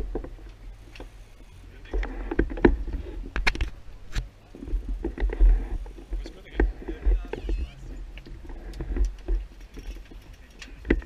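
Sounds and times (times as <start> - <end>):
faint voices: 4.3 - 11.0
low rumble: 6.6 - 9.6.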